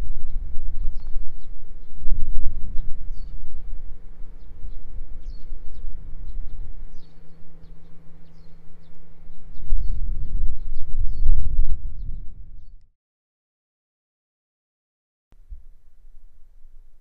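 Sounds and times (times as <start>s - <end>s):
steady low rumble: 0.0s - 12.9s
small birds chirping: 0.3s - 3.7s, 4.3s - 12.8s.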